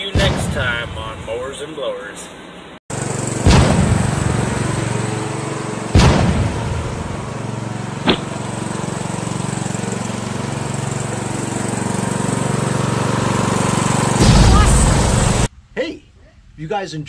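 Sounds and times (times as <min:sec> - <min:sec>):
loud bang: 0:00.0 - 0:01.6, 0:03.4 - 0:04.5, 0:06.0 - 0:07.2, 0:14.2 - 0:15.5
riding mower engine running: 0:02.9 - 0:15.5
short sharp pop: 0:08.0 - 0:08.3.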